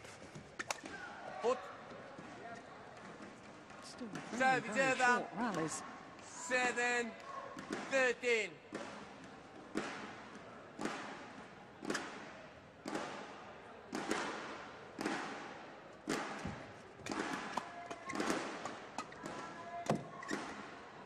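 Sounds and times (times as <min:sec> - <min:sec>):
racquets hitting shuttlecock: 0:00.4 - 0:01.1, 0:07.6 - 0:08.0, 0:08.7 - 0:20.8.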